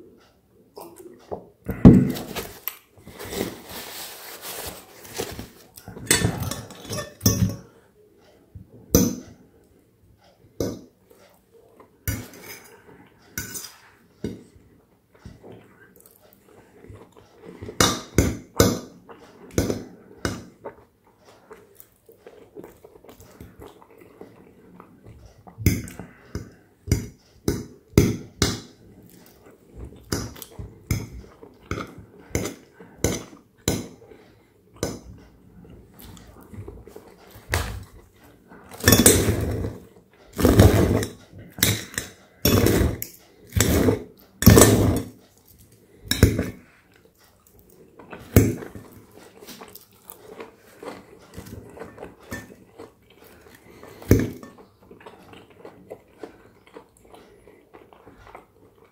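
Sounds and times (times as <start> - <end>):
knife and fork scraping plate: 2.2 - 7.7, 38.8 - 39.8, 40.4 - 45.1.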